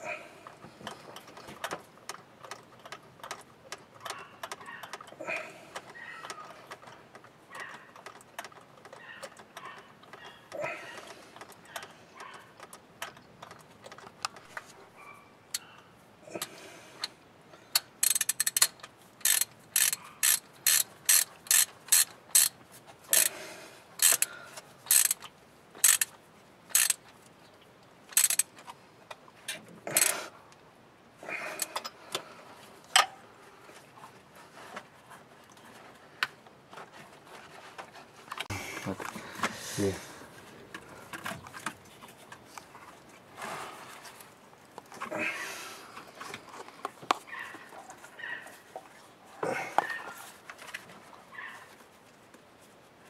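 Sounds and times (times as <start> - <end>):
ratchet wrench clicking: 17.7 - 23.3, 24.0 - 24.3, 24.9 - 26.1, 26.7 - 27.0, 28.1 - 28.5
metal handling noise: 28.1 - 30.2.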